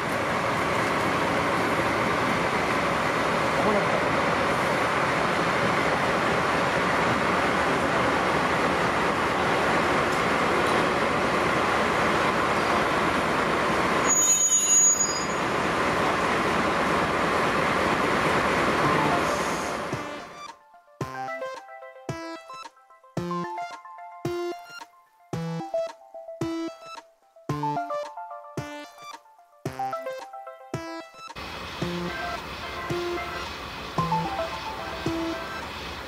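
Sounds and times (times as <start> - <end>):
diesel locomotive running: 0.0 - 20.5, 31.4 - 36.0
high squeal: 14.0 - 15.6.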